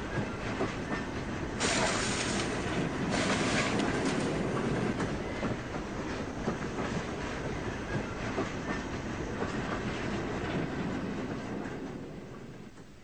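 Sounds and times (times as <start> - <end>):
train wheels clattering on rails: 0.0 - 13.0.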